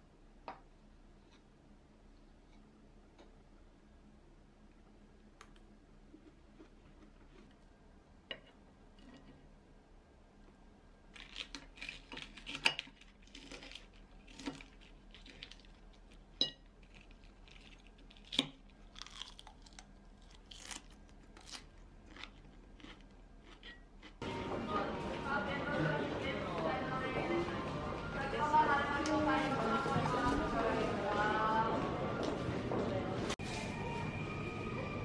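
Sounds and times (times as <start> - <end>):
chewing and crunching: 11.1 - 24.2.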